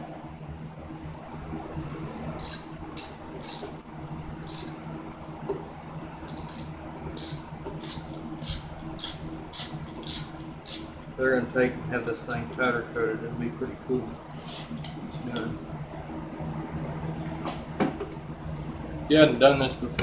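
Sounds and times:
socket ratchet clicking: 0:02.4 - 0:03.7, 0:04.5 - 0:04.8, 0:06.3 - 0:10.9.

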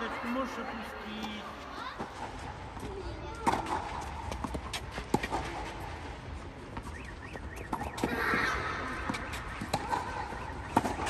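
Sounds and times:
ball bouncing: 0:02.0 - 0:05.9, 0:06.7 - 0:11.0
racket striking ball: 0:07.6 - 0:08.2, 0:09.0 - 0:11.0.

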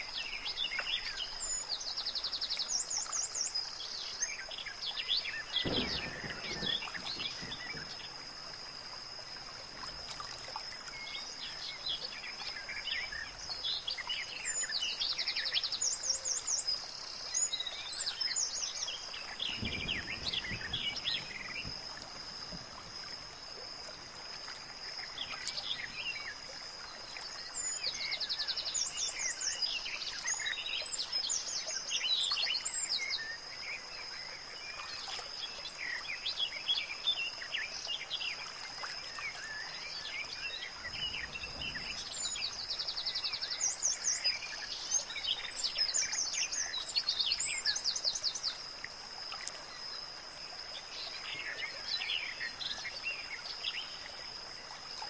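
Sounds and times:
birds chirping and trilling: 0:00.0 - 0:08.8, 0:10.8 - 0:21.7, 0:39.1 - 0:48.5.

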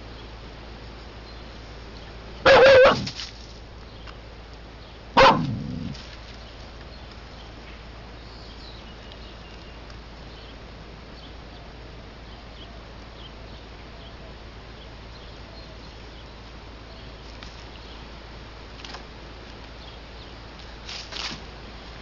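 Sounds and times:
low hum: 0:00.0 - 0:11.6
outdoor background hiss: 0:00.0 - 0:22.0.

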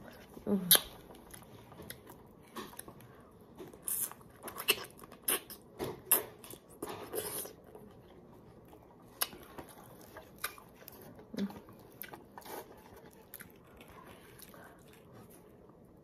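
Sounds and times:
person biting and chewing fruit: 0:00.2 - 0:08.0.

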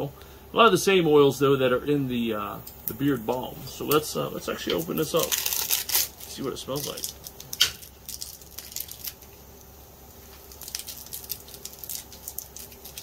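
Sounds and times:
plastic crinkling: 0:03.8 - 0:13.0.

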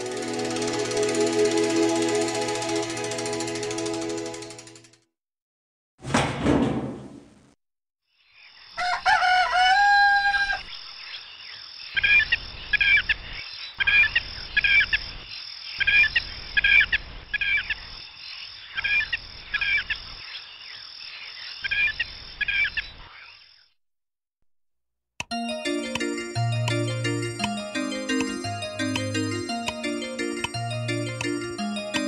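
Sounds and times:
high-pitched background drone: 0:00.0 - 0:04.6, 0:25.5 - 0:32.0
rooster crowing: 0:08.8 - 0:10.7
small birds chirping: 0:10.6 - 0:23.7.

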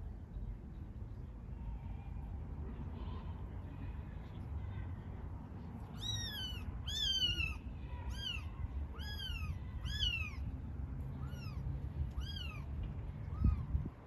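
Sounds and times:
cat meowing: 0:06.0 - 0:10.4, 0:11.2 - 0:12.7.

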